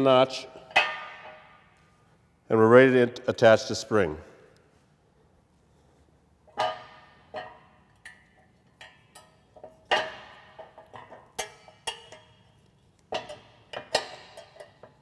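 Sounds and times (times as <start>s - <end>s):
metal spring clinking on steel: 6.5s - 15.0s.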